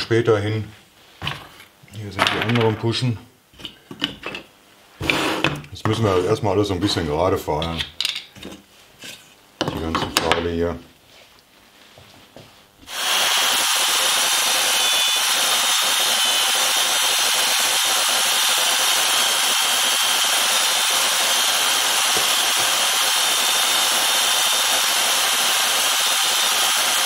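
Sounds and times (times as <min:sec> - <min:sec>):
belt sander running: 0:12.9 - 0:27.0.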